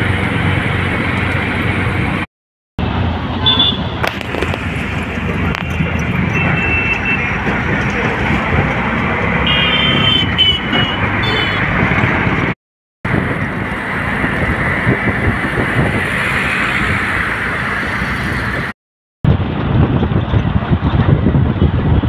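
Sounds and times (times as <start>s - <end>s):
road traffic rumble: 0.0s - 22.0s
vehicle horn toots: 3.4s - 3.9s, 6.3s - 7.3s, 9.4s - 11.6s.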